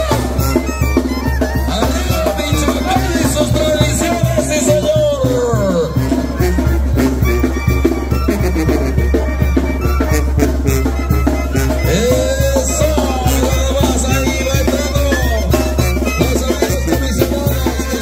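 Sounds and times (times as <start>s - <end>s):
banda music with bass and drums: 0.0s - 18.0s.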